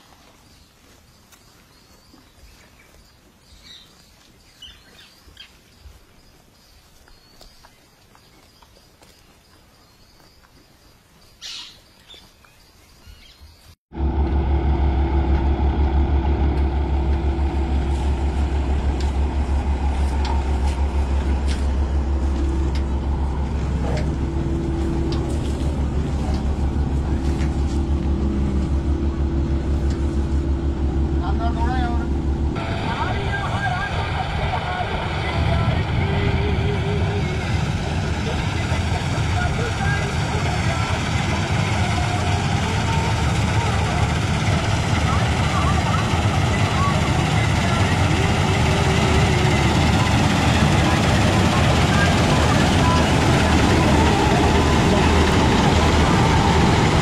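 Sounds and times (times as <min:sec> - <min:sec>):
combine harvester engine droning: 0:13.9 - 0:57.0.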